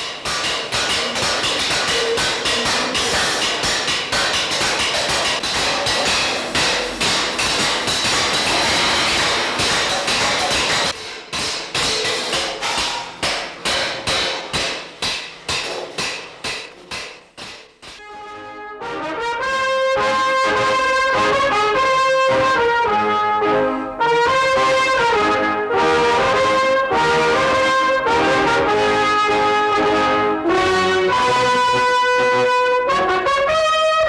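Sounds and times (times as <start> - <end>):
cymbal strikes ringing: 0.1 - 13.1
orchestra playing: 18.0 - 31.9
trombones playing sustained notes: 18.0 - 34.0.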